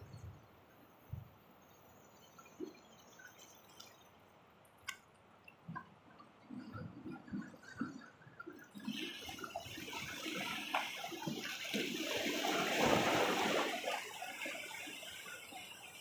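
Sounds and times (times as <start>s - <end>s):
sea waves washing over rocks: 8.8s - 16.0s.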